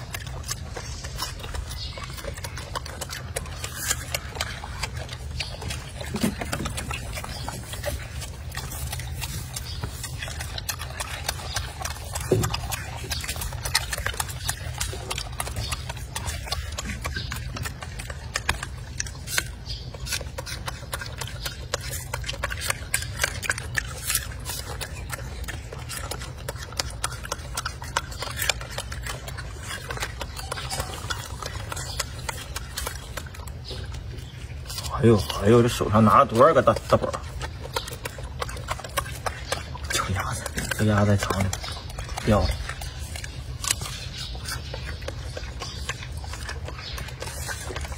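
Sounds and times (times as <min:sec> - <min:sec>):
monkey chewing food: 0:00.0 - 0:47.9.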